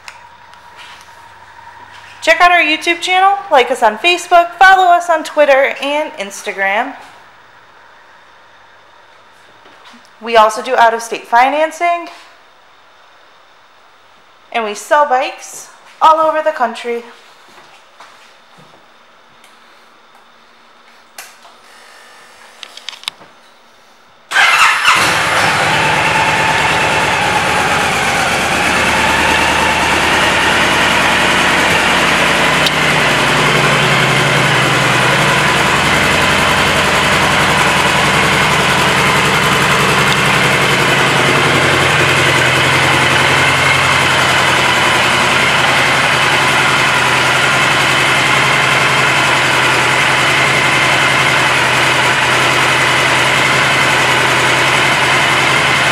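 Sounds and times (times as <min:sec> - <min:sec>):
motorcycle engine starting and idling: 0:00.0 - 0:03.5, 0:24.3 - 0:55.9.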